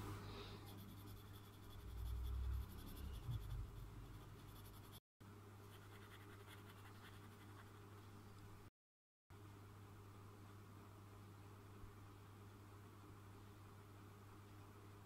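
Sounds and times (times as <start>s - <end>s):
low electrical hum: 0.0s - 8.7s, 9.3s - 15.0s
pencil scratching on paper: 0.7s - 5.0s, 5.7s - 8.0s
dull low rumble: 1.8s - 4.3s.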